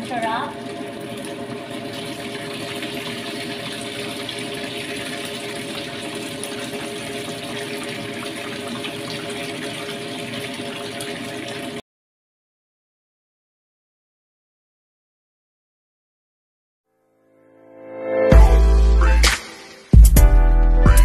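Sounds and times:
broth boiling and bubbling: 0.0 - 11.8.

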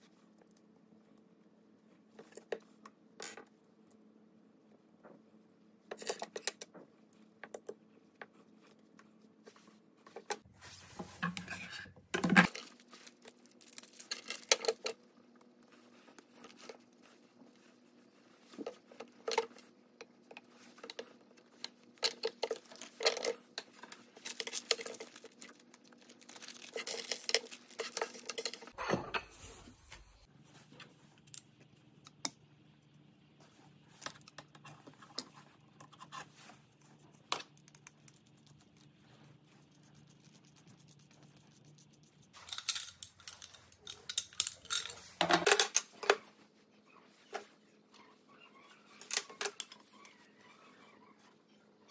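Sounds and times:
clicks taps and clinks of parts: 42.4 - 46.2.

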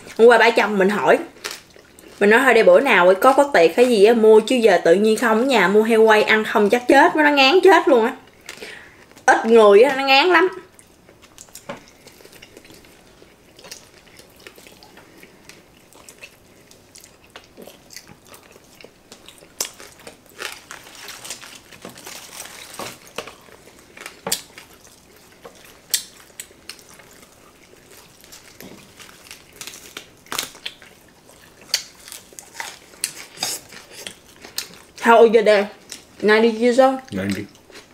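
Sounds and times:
chewing crispy food: 0.0 - 5.5, 7.8 - 37.9
rustling and crunching: 11.0 - 35.0.

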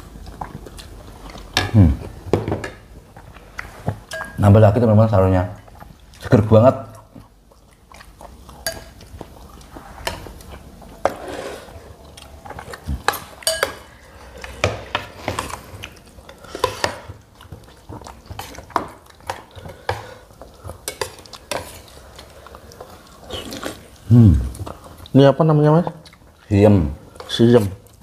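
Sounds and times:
cutlery clinking on plates: 4.1 - 4.4, 13.0 - 13.9.

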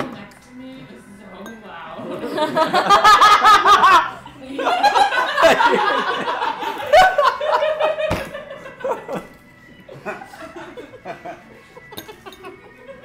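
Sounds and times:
people chattering: 0.0 - 6.9
people laughing loudly: 2.1 - 13.0.

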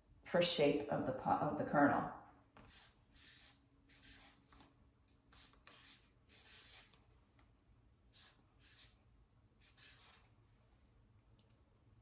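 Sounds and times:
marker scratching on paper: 2.6 - 4.7, 5.3 - 7.1, 8.1 - 9.0, 9.6 - 10.3.

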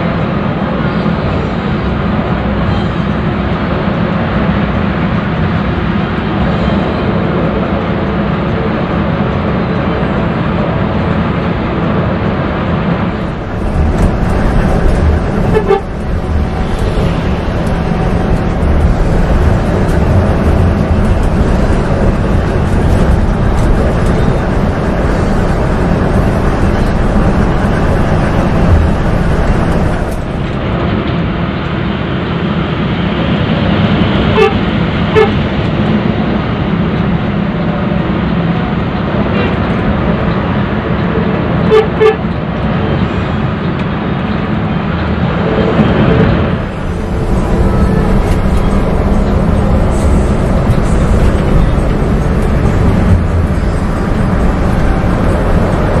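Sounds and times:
coach engine and road noise: 0.0 - 56.0
horn toots: 15.2 - 16.0, 34.3 - 35.4, 41.7 - 42.2.

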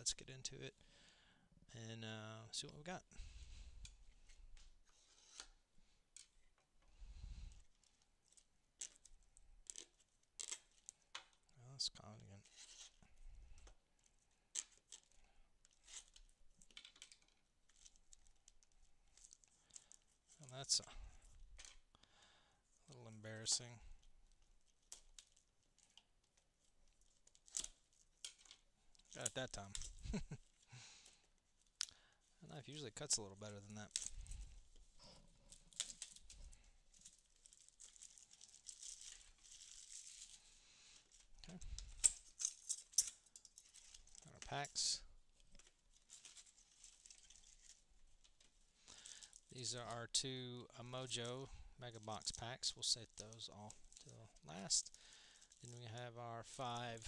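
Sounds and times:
plastic wrap crinkling: 14.0 - 22.0, 22.8 - 49.5, 52.0 - 57.0.

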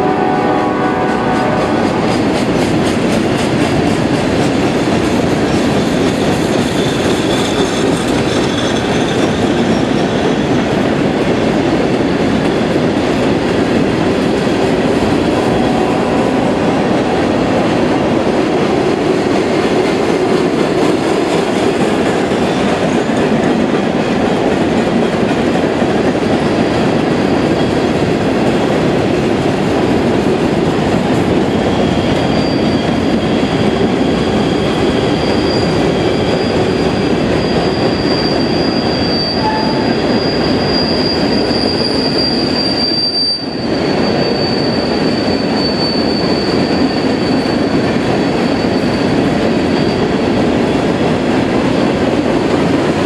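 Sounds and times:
high squeal of train cars: 0.0 - 53.0
train wheels rumbling on rails: 0.0 - 53.0.

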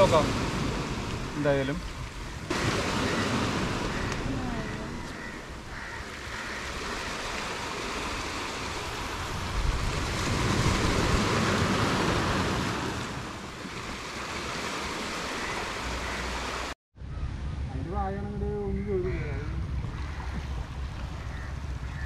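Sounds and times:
wind rumbling on microphone: 0.0 - 16.0, 17.0 - 22.0
waves breaking on shore: 0.0 - 16.8.

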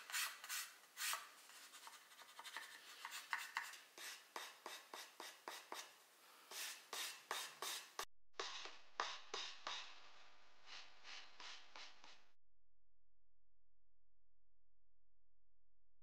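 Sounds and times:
sandpaper rasping on wood: 6.5 - 10.0, 10.7 - 12.2.

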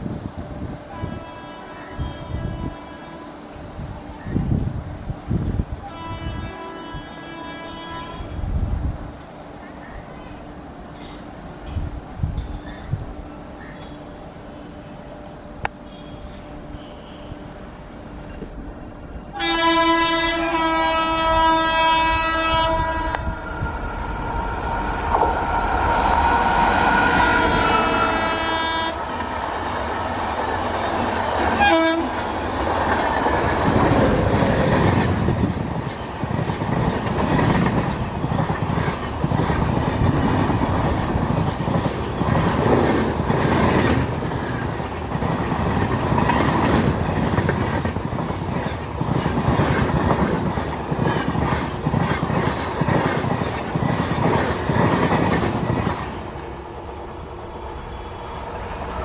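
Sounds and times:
electric locomotive horn blast: 0.9 - 3.5, 5.8 - 8.5, 15.8 - 17.6, 19.3 - 23.6, 26.8 - 29.2, 31.5 - 32.2
train wheels clattering over rail joints: 32.6 - 56.4.

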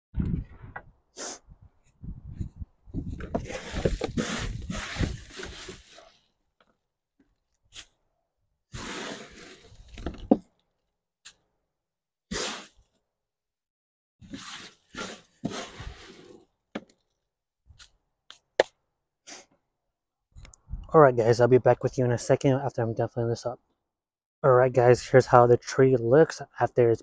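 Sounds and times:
mulch rustling and scraping in cart: 3.4 - 6.2, 14.3 - 16.4.

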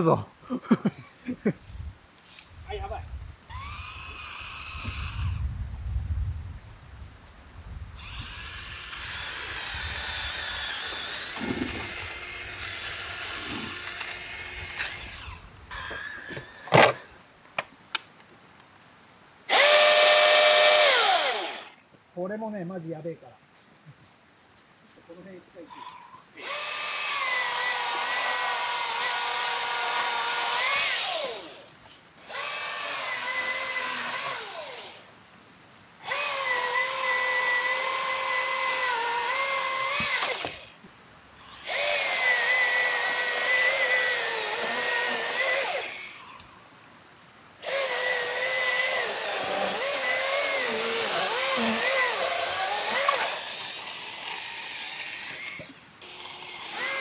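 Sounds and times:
electric chainsaw whining: 3.5 - 5.5, 8.0 - 17.2, 19.5 - 21.8, 26.4 - 35.1, 36.0 - 40.8, 41.4 - 46.5, 47.6 - 57.0.

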